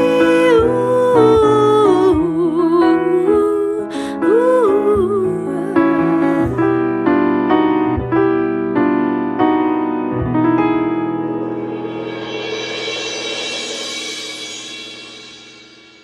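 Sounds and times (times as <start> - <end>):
person singing: 0.0 - 6.7
piano chords: 0.0 - 16.0.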